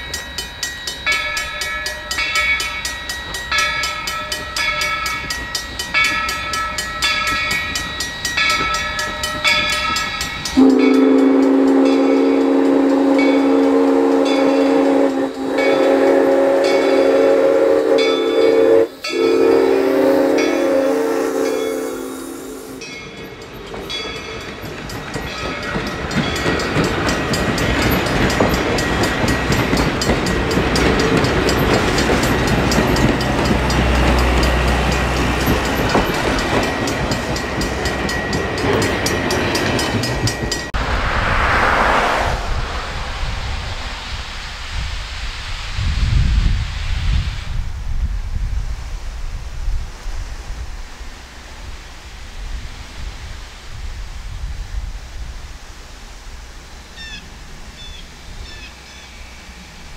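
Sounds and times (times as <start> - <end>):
steam locomotive bell ringing: 0.0 - 40.8
train rumble and rail noise: 0.0 - 59.9
steam whistle low chord: 6.2 - 23.1.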